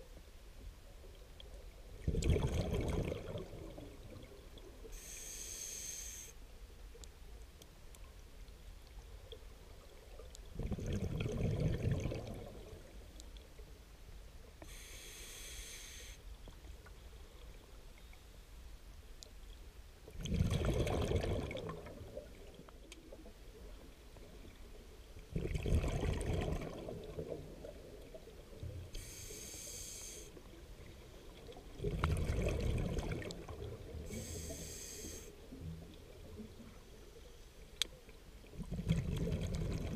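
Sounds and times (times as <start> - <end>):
exhaled bubbles bursting: 2.0 - 4.2, 10.5 - 12.9, 20.2 - 22.5, 25.3 - 27.8, 31.8 - 34.0, 38.6 - 39.9
regulator hissing inhalations: 4.9 - 6.4, 14.6 - 16.2, 29.0 - 30.4, 34.1 - 35.4.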